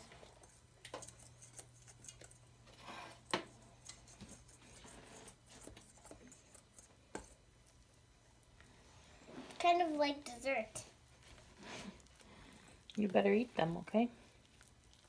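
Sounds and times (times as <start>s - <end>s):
whisk scraping a mixing bowl: 0.0s - 7.5s.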